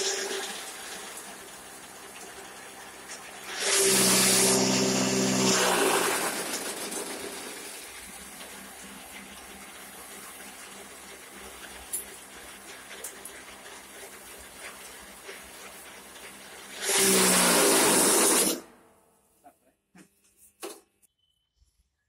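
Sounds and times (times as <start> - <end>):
motor hum: 0.0 - 18.6
chaff cutter chopping straw: 3.1 - 18.6.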